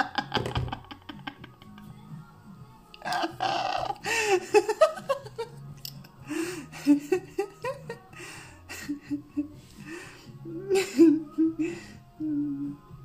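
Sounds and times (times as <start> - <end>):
woman laughing: 0.0 - 1.9, 3.0 - 5.5, 6.6 - 9.6, 10.5 - 11.9.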